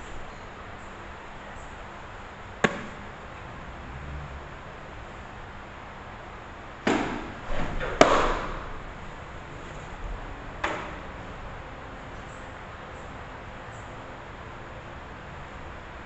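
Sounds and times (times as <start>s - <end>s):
softball smacking leather mitt: 2.6s - 3.0s, 6.9s - 7.3s, 8.0s - 8.7s.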